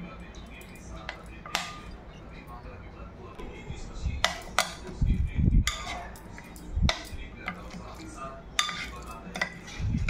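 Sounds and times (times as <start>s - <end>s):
fork stirring thick marinade: 4.2s - 10.0s.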